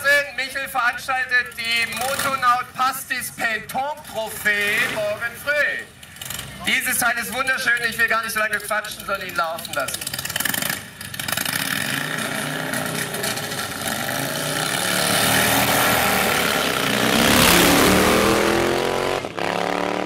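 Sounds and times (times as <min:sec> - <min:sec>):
motorcycle engine revving: 0:06.0 - 0:06.7, 0:09.6 - 0:20.0.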